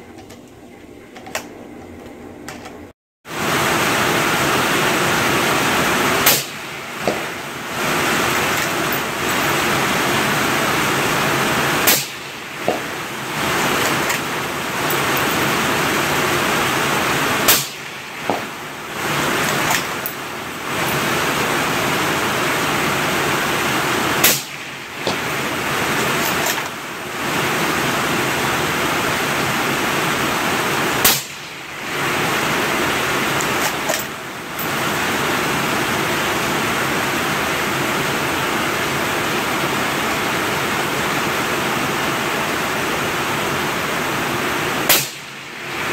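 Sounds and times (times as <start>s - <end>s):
heavy rain hiss: 3.3s - 45.9s
suppressed rifle shots: 6.2s - 7.4s, 11.8s - 14.3s, 17.4s - 18.6s, 24.2s - 25.4s, 31.0s - 31.5s, 44.9s - 45.4s.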